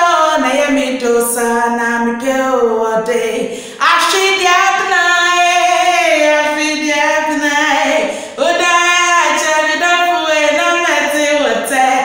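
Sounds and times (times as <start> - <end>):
woman singing unaccompanied: 0.0 - 12.0
breath: 3.5 - 3.8, 8.0 - 8.4.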